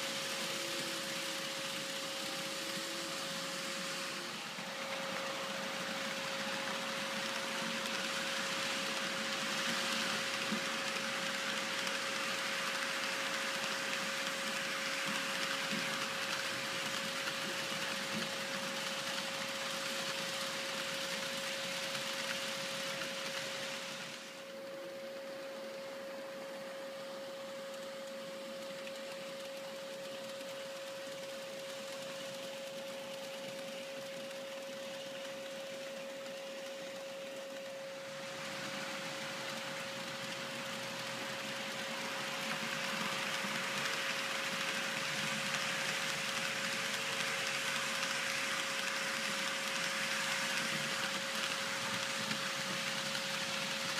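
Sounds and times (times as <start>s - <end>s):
constant high hum: 0.0s - 53.9s
model train wheels rattling: 27.7s - 53.9s.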